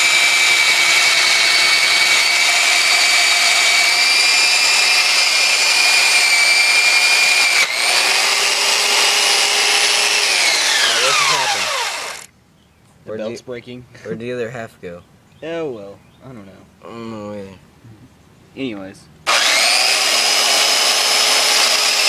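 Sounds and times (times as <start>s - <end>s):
belt sander grinding metal: 0.0s - 12.3s, 19.3s - 22.0s
belt sander spinning down: 0.0s - 12.3s, 19.3s - 22.0s.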